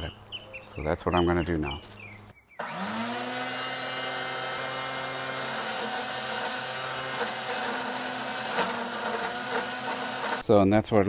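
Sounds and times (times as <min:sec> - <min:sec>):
dry fronds crackling in shredder: 0:02.6 - 0:10.5
shredder motor humming: 0:02.6 - 0:10.5.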